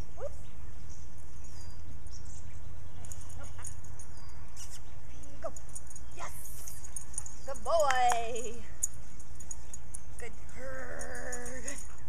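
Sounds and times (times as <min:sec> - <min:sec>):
bird chirps: 0:00.0 - 0:07.8.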